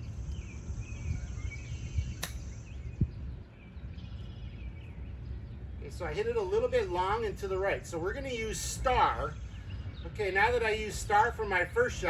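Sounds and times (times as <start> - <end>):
birds chirping: 0.0 - 12.0
wind rumbling on microphone: 0.0 - 12.0
golf club striking ball: 2.2 - 2.6.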